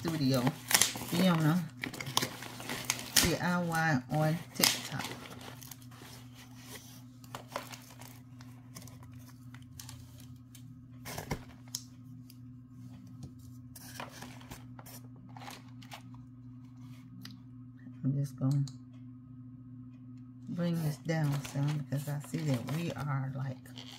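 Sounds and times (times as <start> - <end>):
package rustling and crinkling: 0.0 - 10.5, 13.8 - 16.2, 21.2 - 23.9
steady low hum: 0.0 - 23.9.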